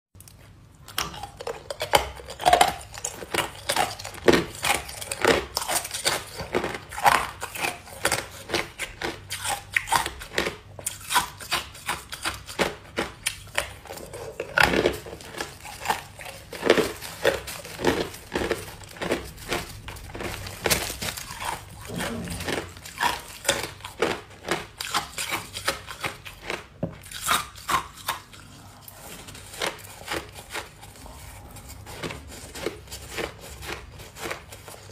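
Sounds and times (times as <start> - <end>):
ice crunching being chewed: 0.2 - 34.9
plastic bag crinkling: 14.4 - 24.6.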